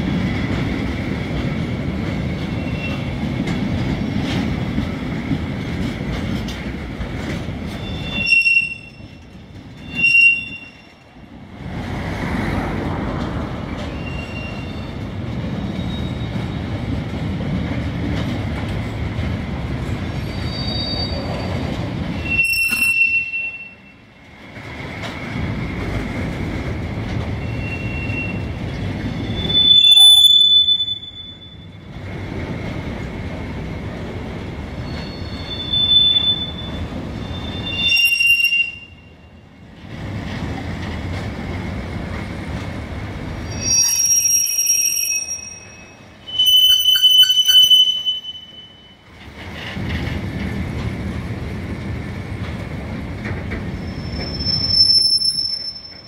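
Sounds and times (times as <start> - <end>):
train wheels rumbling on rail: 0.0 - 56.0
high-pitched wheel squeal: 7.7 - 9.2, 9.8 - 10.9, 13.9 - 15.0, 15.6 - 16.6, 20.2 - 21.6, 22.2 - 23.9, 27.4 - 28.5, 29.1 - 31.9, 34.8 - 39.1, 43.4 - 49.0, 53.8 - 56.0.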